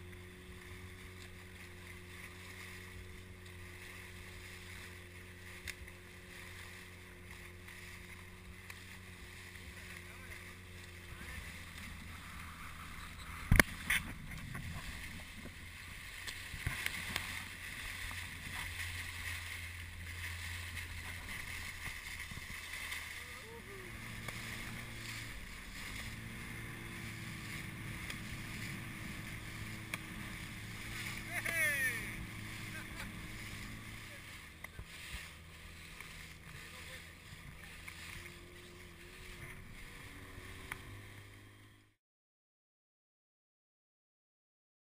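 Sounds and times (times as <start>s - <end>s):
sea water sloshing and lapping: 0.0s - 41.2s
wake rushing: 0.0s - 41.4s
low hum: 0.0s - 42.0s
wind on microphone: 11.2s - 22.9s.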